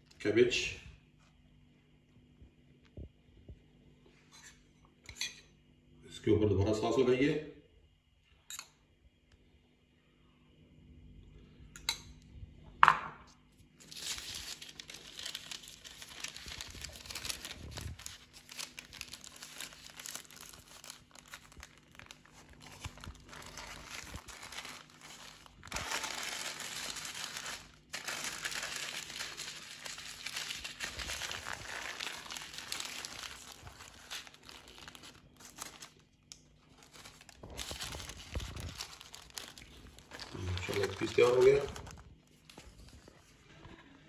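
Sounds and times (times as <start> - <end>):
paper crinkling and rustling: 13.7 - 43.4.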